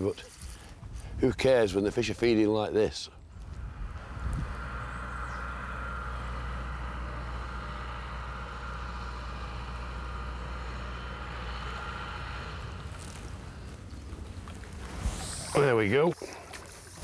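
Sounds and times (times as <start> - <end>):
higher hum: 3.2 - 17.0
mechanical motor drone: 3.3 - 14.0.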